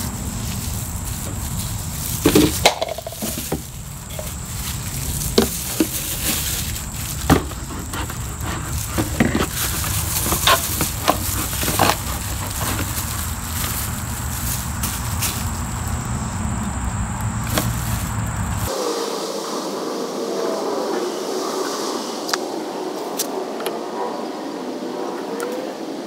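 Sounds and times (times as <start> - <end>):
plastic jug crinkling and knocking: 0.4 - 15.6, 17.4 - 18.7.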